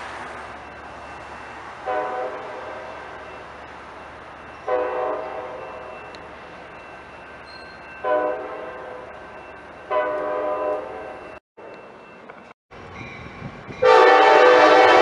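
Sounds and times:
train horn blasts: 1.8 - 2.9, 4.7 - 5.9, 8.0 - 9.0, 9.9 - 11.0, 13.8 - 15.0.

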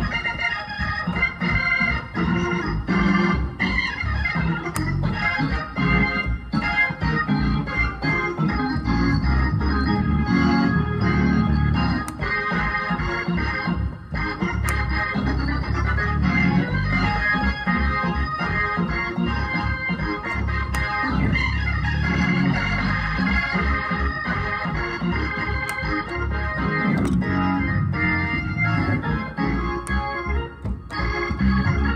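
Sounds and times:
gospel piano playing: 0.0 - 31.9.

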